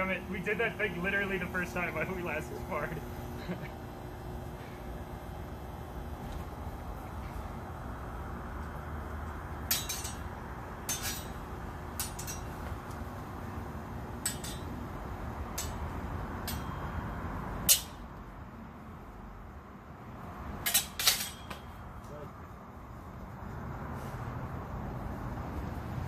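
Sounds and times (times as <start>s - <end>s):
steady background noise: 0.0s - 26.0s
swords clashing: 9.7s - 11.4s, 12.0s - 12.5s, 14.3s - 14.7s, 15.6s - 15.8s, 16.4s - 16.8s, 17.7s - 18.0s, 20.6s - 21.7s.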